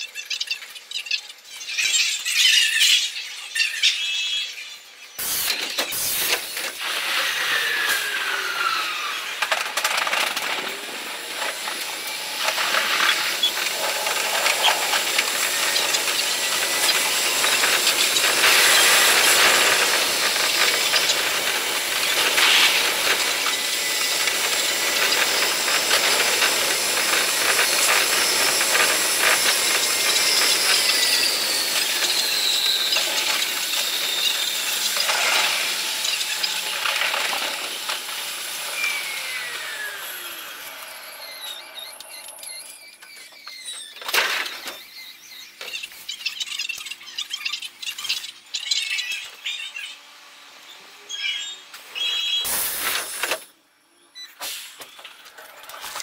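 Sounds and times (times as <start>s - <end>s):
train motor whine: 5.2s - 45.8s.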